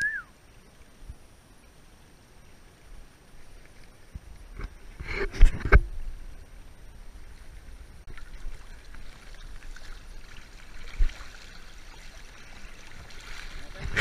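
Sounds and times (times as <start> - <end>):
fish splashing in net: 8.1 - 13.7.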